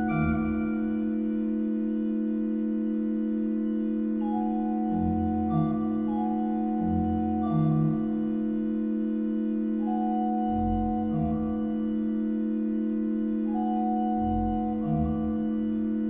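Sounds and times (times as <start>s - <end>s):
pipe organ playing: 0.0s - 1.0s, 4.2s - 8.2s, 9.8s - 12.1s, 13.4s - 15.8s
deep organ pedal notes: 0.0s - 2.2s, 3.7s - 16.0s.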